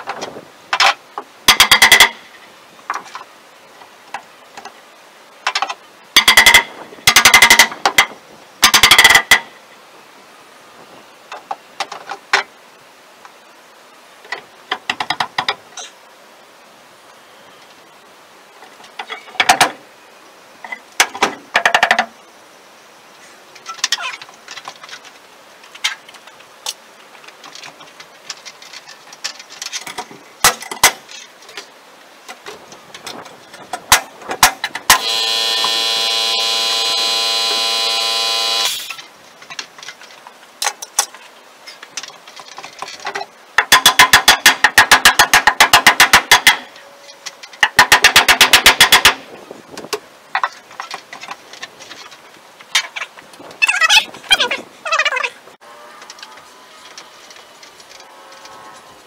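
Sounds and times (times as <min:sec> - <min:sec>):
power drill whirring: 0:35.0 - 0:39.0
knocks and clicks: 0:47.5 - 0:49.2.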